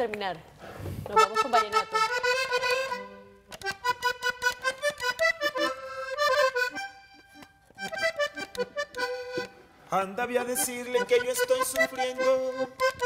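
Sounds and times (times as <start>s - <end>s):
accordion playing: 1.1s - 13.0s.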